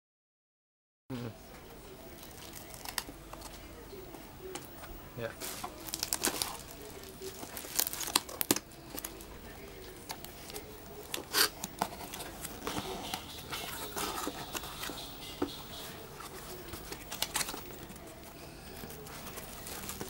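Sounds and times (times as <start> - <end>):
cardboard rustling and scraping: 10.1 - 20.0.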